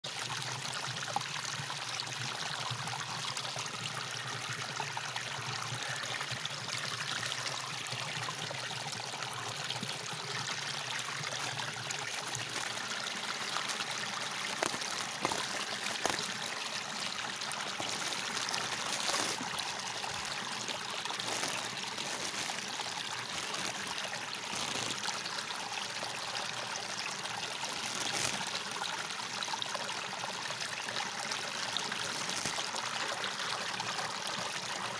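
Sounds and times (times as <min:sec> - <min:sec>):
plastic packet crinkling: 0:10.9 - 0:25.1, 0:27.6 - 0:28.5, 0:31.9 - 0:32.7.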